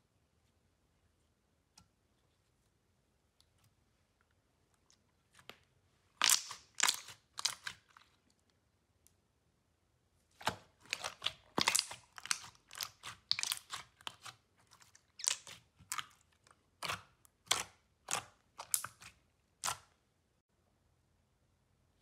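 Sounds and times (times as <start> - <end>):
slime crackling and popping: 6.2 - 8.1, 10.4 - 16.2, 16.8 - 19.9.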